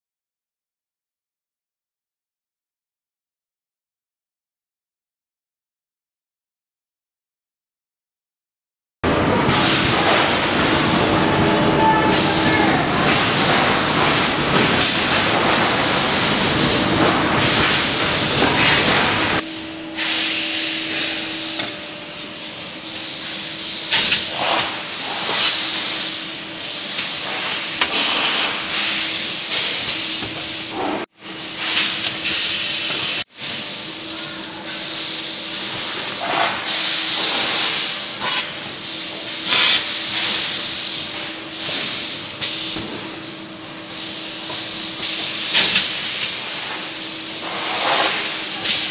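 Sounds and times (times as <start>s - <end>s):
factory din: 9.0s - 24.9s
machine electric hum: 9.0s - 48.9s.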